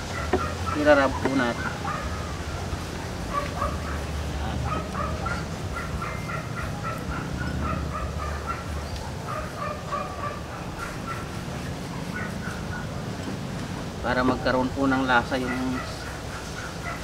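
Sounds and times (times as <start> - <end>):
fowl clucking: 0.0 - 2.7.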